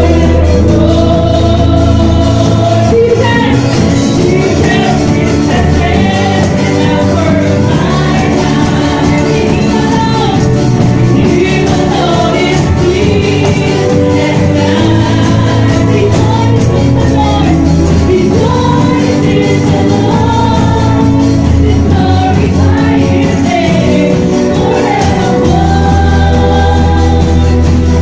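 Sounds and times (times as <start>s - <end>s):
worship song singing with band: 0.0s - 28.0s.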